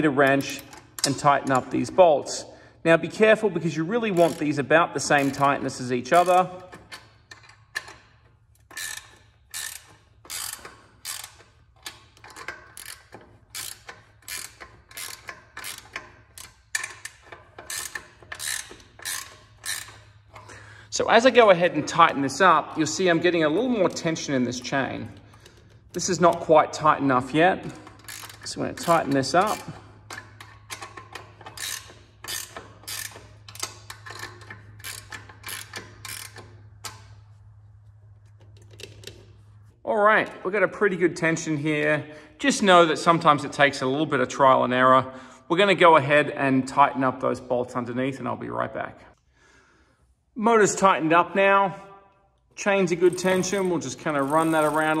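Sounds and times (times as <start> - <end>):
ratcheting wrench clicking: 0.2 - 1.7, 4.1 - 20.7, 23.7 - 26.5, 27.6 - 37.4, 52.9 - 55.0.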